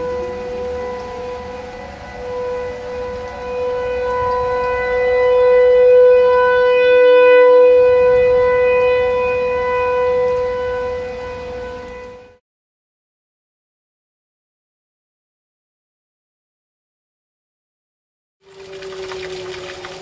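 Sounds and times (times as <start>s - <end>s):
tornado warning siren: 0.0s - 12.4s, 18.4s - 20.0s.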